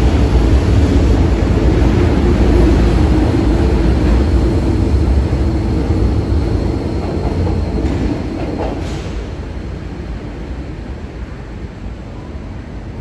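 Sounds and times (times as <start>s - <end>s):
electric train rumbling past: 0.0s - 13.0s.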